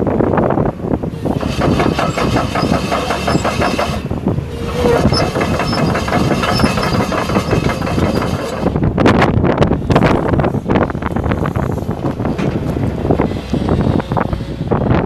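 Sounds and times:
diesel engine idling: 0.0s - 9.0s.

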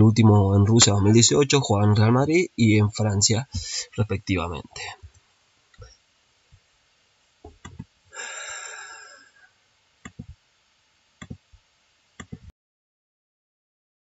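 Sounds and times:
breathy hiss: 3.3s - 5.0s, 8.1s - 9.6s.

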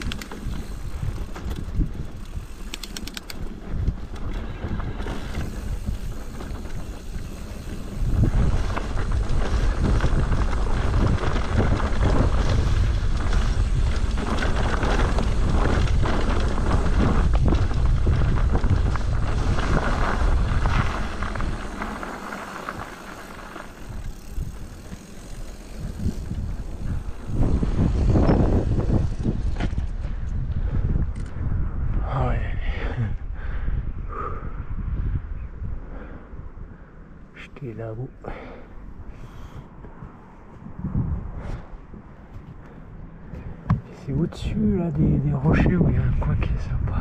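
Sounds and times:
bike rattling over rocks: 0.0s - 30.5s
bicycle tyres crunching on rocks: 0.0s - 30.6s
wind buffeting microphone: 0.0s - 37.3s, 38.3s - 47.0s.

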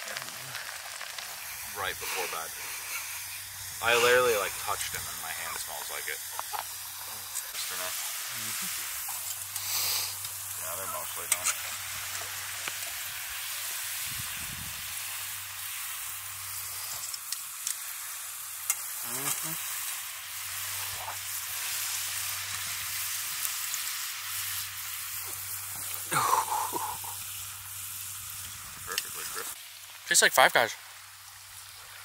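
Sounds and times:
fries sizzling in hot oil: 0.0s - 32.0s
person speaking: 3.8s - 6.2s, 10.6s - 12.3s.

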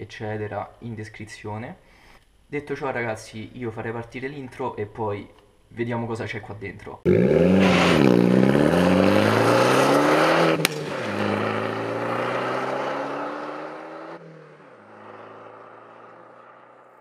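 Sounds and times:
car engine revving: 7.1s - 17.0s
sharp crack on gear change: 10.6s - 11.0s.

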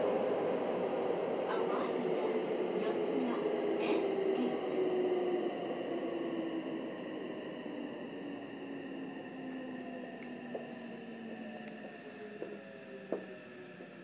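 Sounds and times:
train running noise: 0.0s - 5.0s, 10.0s - 14.0s.

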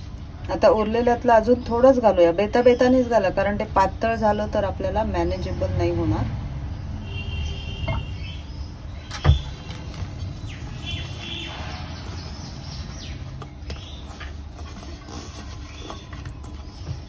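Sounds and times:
birds chirping: 0.6s - 17.0s
hands kneading dough in steel bowl: 9.4s - 17.0s.

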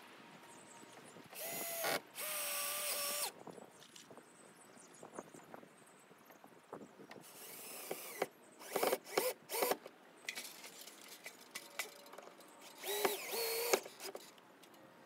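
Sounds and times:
cordless drill driving into wood: 1.4s - 3.3s, 7.4s - 9.9s, 12.8s - 14.2s.

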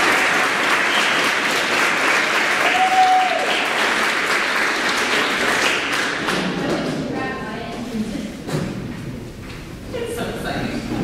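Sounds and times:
audience applauding: 0.0s - 6.7s.

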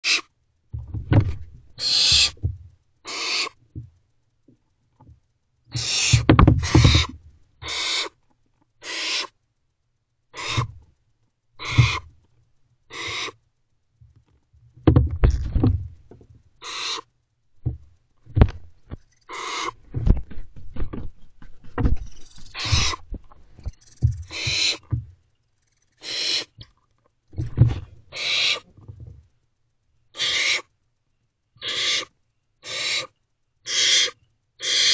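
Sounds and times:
owlets hissing begging calls: 0.0s - 0.3s, 1.8s - 2.4s, 3.1s - 3.6s, 5.7s - 8.2s, 8.8s - 9.3s, 10.4s - 10.8s, 11.6s - 12.0s, 12.9s - 13.4s, 16.6s - 17.1s, 19.1s - 19.8s, 22.1s - 23.0s, 23.8s - 24.9s, 25.8s - 26.6s, 28.1s - 28.6s, 30.2s - 30.7s, 31.6s - 33.1s, 33.7s - 34.9s
owlets thumping and scuffling: 0.8s - 2.7s, 6.1s - 7.2s, 11.6s - 12.1s, 14.8s - 16.3s, 17.6s - 25.2s, 27.3s - 28.0s.

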